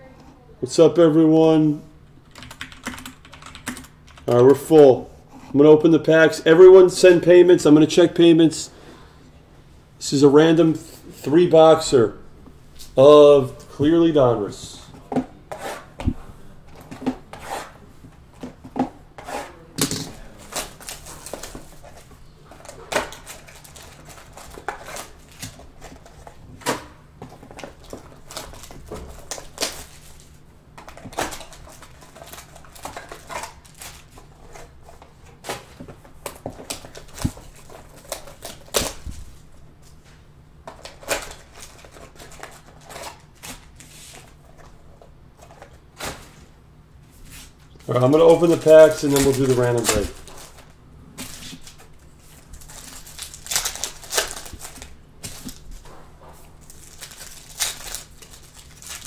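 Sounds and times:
wrappers rustling and crinkling: 20.3 - 26.4, 27.7 - 34.8, 47.3 - 55.9, 56.6 - 59.0.

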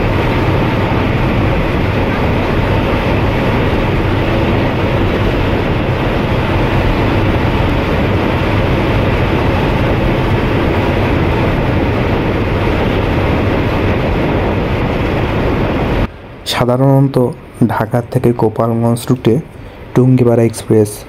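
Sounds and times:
bus engine droning: 0.0 - 16.1
road and wind noise: 0.0 - 20.8.

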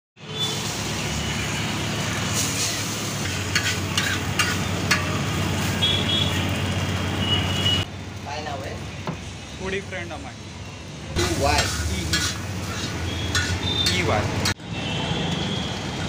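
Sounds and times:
food sizzling on a griddle: 0.2 - 10.1, 11.1 - 14.6
metal spatula clicking on griddle: 11.6 - 14.6.

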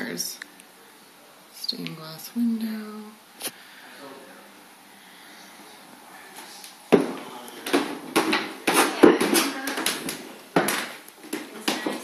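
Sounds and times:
footsteps on wooden stairs: 6.9 - 12.0.

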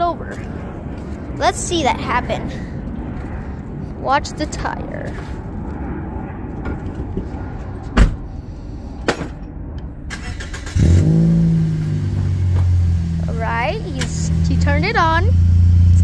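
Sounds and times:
car engine starting and idling: 10.0 - 16.0.

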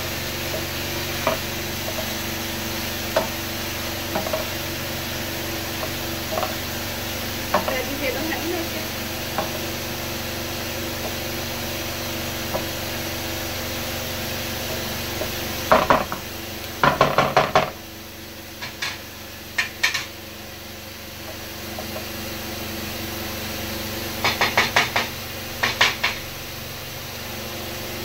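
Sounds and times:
pan sizzling: 0.0 - 26.9
sharp clicks and knocks: 4.1 - 4.6, 18.6 - 19.0, 19.6 - 20.1.

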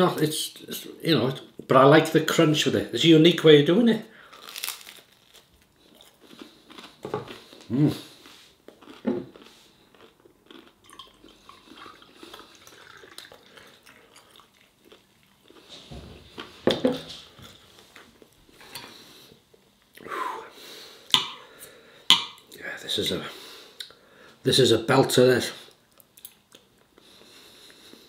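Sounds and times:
beer pouring into a glass: 10.8 - 14.7
beer fizzing: 10.8 - 14.8.

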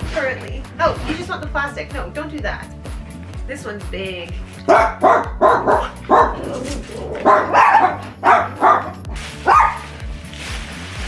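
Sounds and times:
small dog barking: 4.7 - 6.5, 7.2 - 9.9
plastic wrapping rustling: 8.8 - 11.0.

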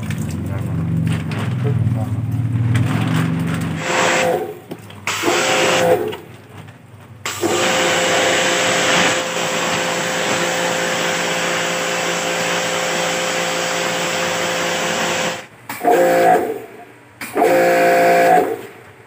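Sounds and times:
pressure washer motor humming: 3.7 - 6.3, 7.2 - 18.7
water jet spraying: 3.8 - 6.2, 7.3 - 16.4.

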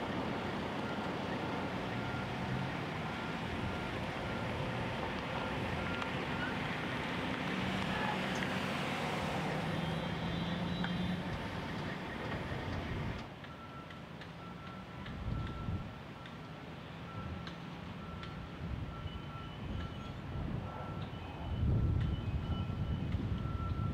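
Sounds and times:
construction machinery engine hum: 0.0 - 23.9
faint motion alarm beeps: 17.1 - 23.9.

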